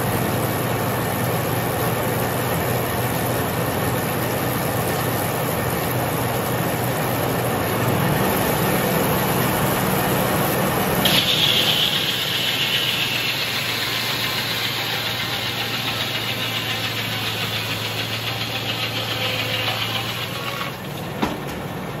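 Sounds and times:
sawmill engine humming: 0.0 - 22.0
high hiss: 11.0 - 20.2.

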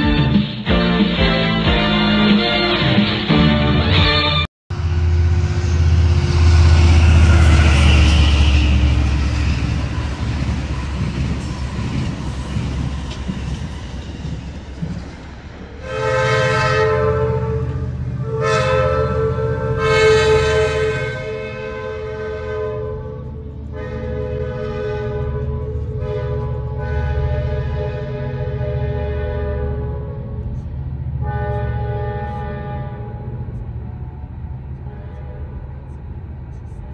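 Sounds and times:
train rumbling past: 0.0 - 36.9
locomotive horn blasts: 15.8 - 30.4, 31.2 - 33.6, 34.7 - 36.0.

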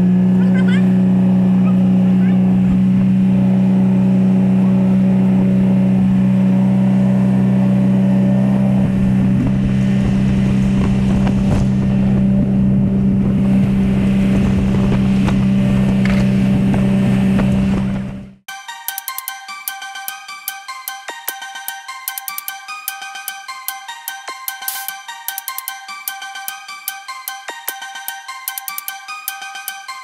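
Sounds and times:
boat engine droning: 0.0 - 18.4.

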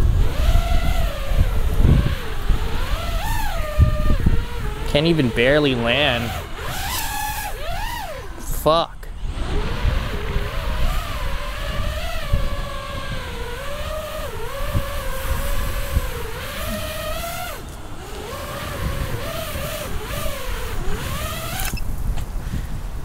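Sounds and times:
drone motors whining: 0.0 - 22.6
wind rumbling on microphone: 0.0 - 23.0.

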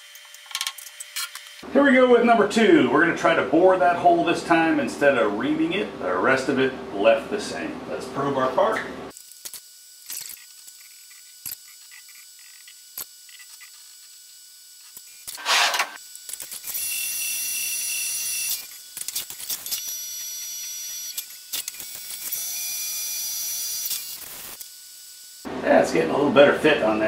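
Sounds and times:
short loud hiss: 15.4 - 16.0.

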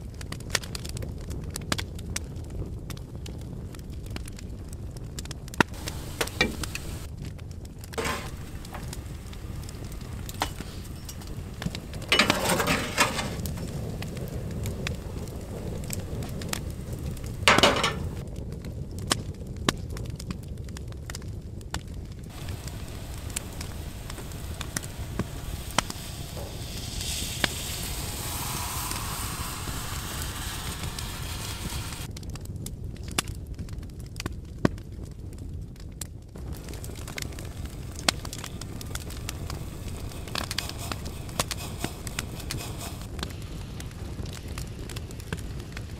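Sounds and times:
wood fire crackling and popping: 0.0 - 45.9
soft hiss: 5.7 - 7.1, 8.0 - 18.2, 22.3 - 32.1, 36.4 - 45.8.

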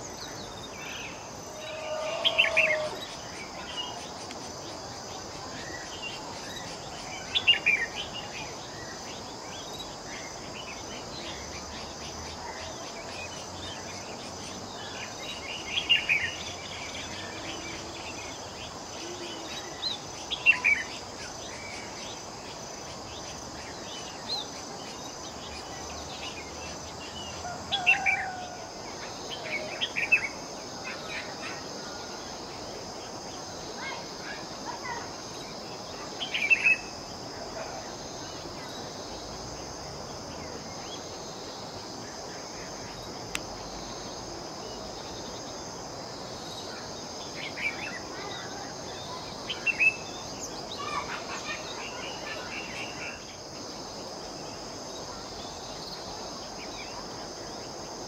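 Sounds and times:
high-pitched insect drone: 0.0 - 8.2.

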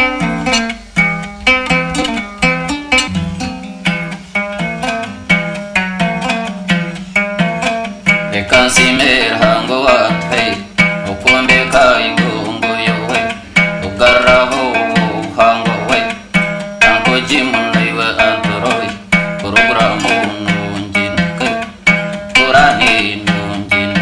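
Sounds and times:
low percussive beat: 0.0 - 20.6
plucked string instrument: 0.0 - 24.0
voices singing: 8.3 - 21.8, 22.4 - 24.0.

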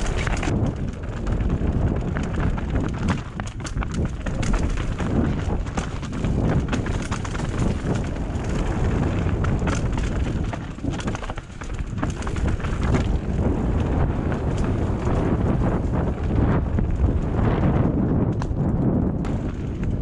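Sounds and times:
tyres crunching over stones: 0.0 - 15.8
bike rattling and knocking: 0.0 - 20.0.

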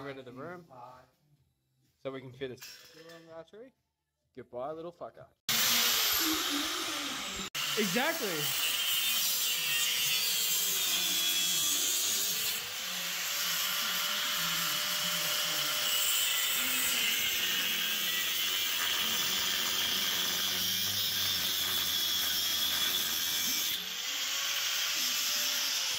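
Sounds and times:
angle grinder cutting steel: 5.5 - 25.9.

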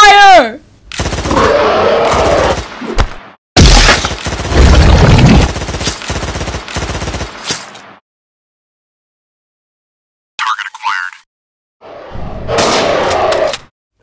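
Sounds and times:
machine-gun fire: 1.0 - 2.7, 3.6 - 7.5.

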